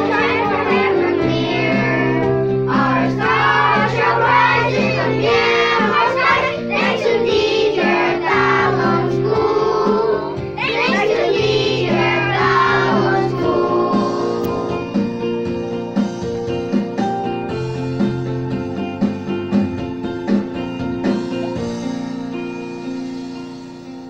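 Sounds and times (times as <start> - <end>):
children singing: 0.0 - 15.1
instrumental accompaniment: 0.0 - 24.0.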